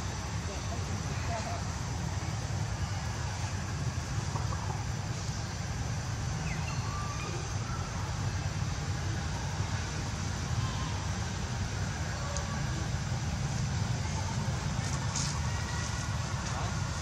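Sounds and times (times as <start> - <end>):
low rumbling background noise: 0.0 - 17.0
faint high chirps: 6.3 - 8.1.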